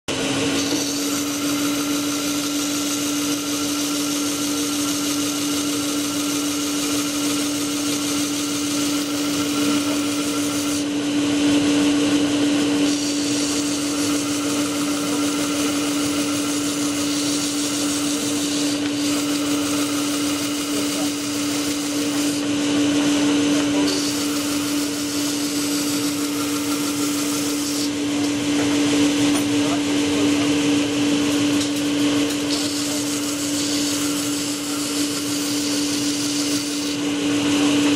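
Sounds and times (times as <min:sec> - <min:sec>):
disc sander motor hum: 0:00.2 - 0:29.2, 0:30.9 - 0:37.9
wood rasping on sanding disc: 0:00.6 - 0:10.9, 0:12.8 - 0:22.5, 0:23.8 - 0:27.9, 0:32.3 - 0:37.0.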